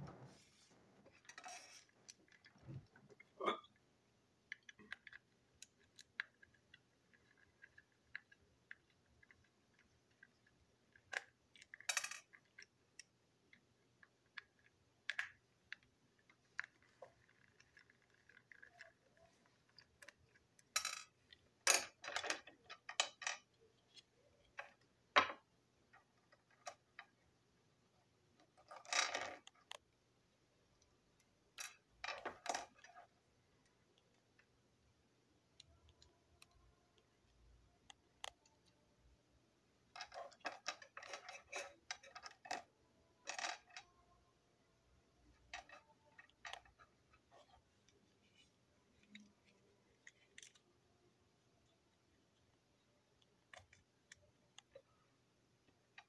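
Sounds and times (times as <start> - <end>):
plastic toy parts clicking and tapping: 4.4 - 27.2, 30.8 - 33.1, 39.9 - 44.0, 45.3 - 48.0.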